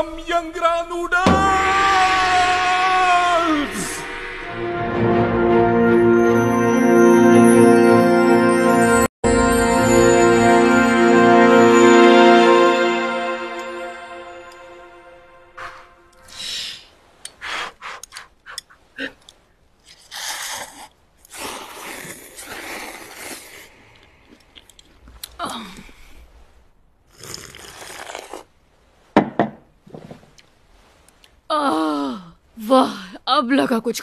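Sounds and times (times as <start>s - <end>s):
woman slurping noodles: 20.0s - 23.9s, 27.1s - 28.5s
breathy voiced sounds: 25.2s - 26.4s
noisy chewing: 27.1s - 28.5s.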